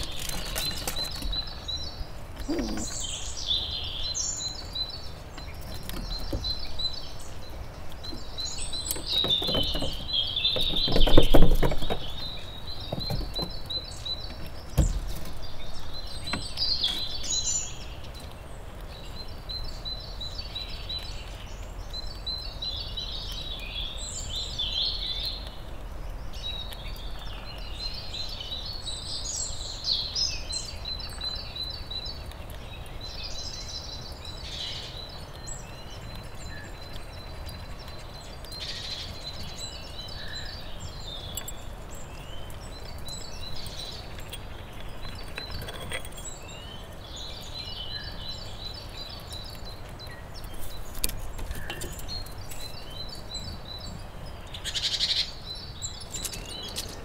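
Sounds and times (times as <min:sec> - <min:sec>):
squirrel cracking seeds: 0:00.0 - 0:03.2
birds singing with fast trills: 0:00.0 - 0:57.0.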